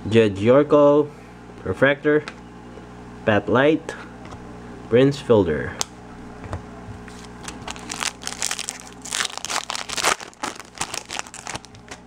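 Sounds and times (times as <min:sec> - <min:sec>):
foil wrapper tearing and crinkling: 0:07.1 - 0:12.0.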